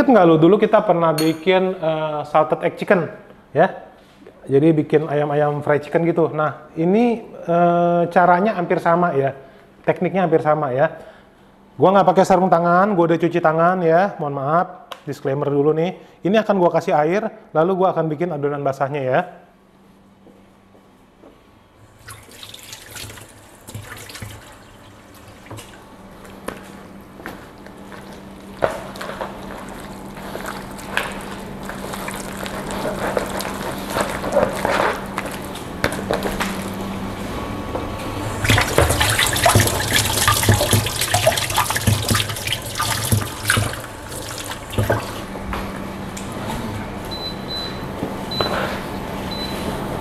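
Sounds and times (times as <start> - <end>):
tap running into sink: 22.1 - 24.6, 38.3 - 45.3
hand squishing food in batter: 27.7 - 35.6.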